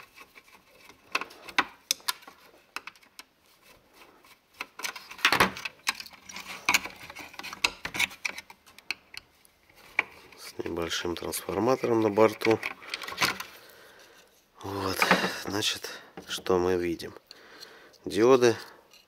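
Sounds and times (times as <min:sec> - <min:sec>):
screwdriver clicking and scraping: 0:04.6 - 0:10.5, 0:18.6 - 0:19.0.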